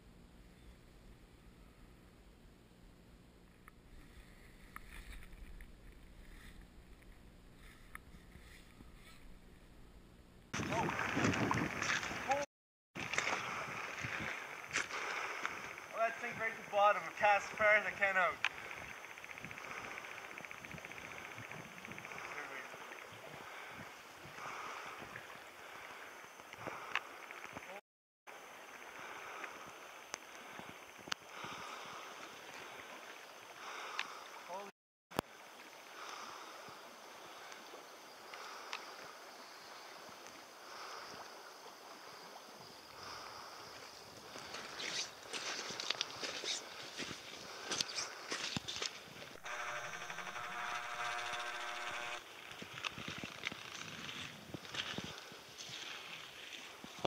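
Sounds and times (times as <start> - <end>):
river water splashing and lapping: 10.6 - 49.7, 51.1 - 57.0
light clicks of fishing rod handling: 38.3 - 39.0, 44.2 - 49.3.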